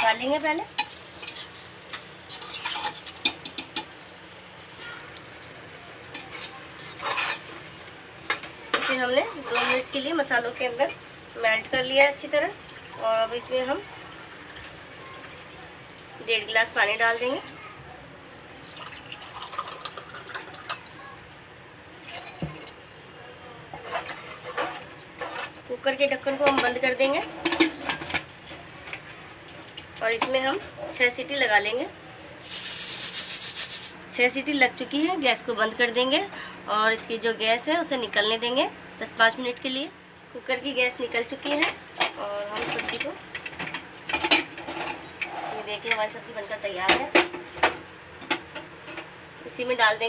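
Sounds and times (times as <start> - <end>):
faint sizzle: 0.0 - 46.8
spoon scraping pot: 2.3 - 3.1, 6.2 - 7.5, 8.7 - 10.0
water sloshing in a pot: 8.3 - 17.6, 18.5 - 21.0, 21.8 - 22.9.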